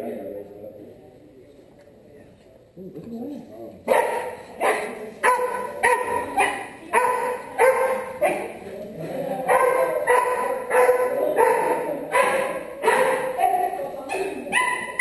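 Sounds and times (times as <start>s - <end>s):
puppy barking: 3.9s - 8.6s, 9.5s - 15.0s.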